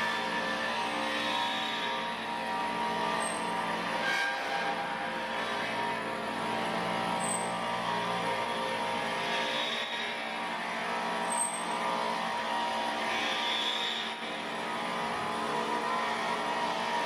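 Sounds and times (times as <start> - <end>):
high squeak: 3.2 - 4.8, 7.2 - 7.6, 11.3 - 11.8.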